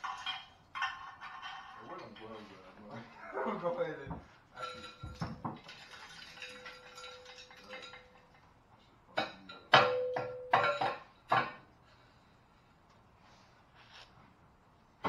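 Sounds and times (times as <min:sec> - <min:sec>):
metal clinks: 0:04.6 - 0:08.5
metal pipe knocking on block: 0:09.2 - 0:11.6.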